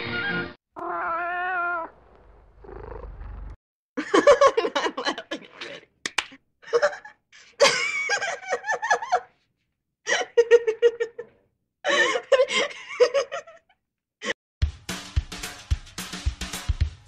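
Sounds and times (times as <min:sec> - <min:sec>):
person giggling: 0:04.0 - 0:06.0, 0:06.6 - 0:09.3, 0:10.1 - 0:13.6.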